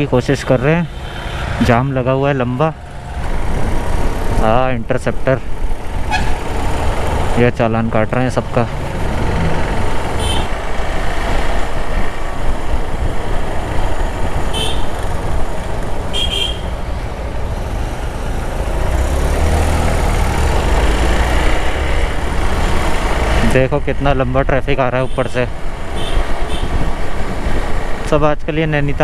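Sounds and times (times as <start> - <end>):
motorcycle engine: 0.0 - 28.1
vehicle horn toots: 6.1 - 6.4, 10.2 - 10.5, 14.5 - 14.9, 16.1 - 16.7, 26.0 - 26.8.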